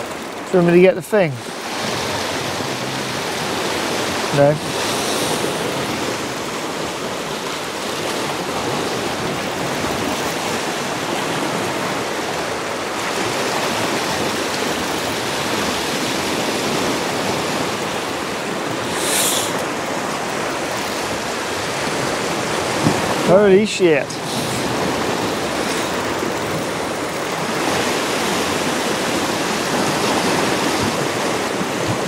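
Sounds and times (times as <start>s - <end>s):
sea waves washing against rocks: 0.0s - 32.0s
higher hiss: 18.8s - 19.6s.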